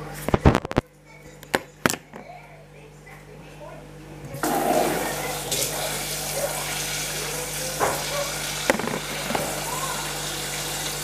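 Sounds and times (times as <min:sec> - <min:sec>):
water running from a tap: 0:04.4 - 0:11.0.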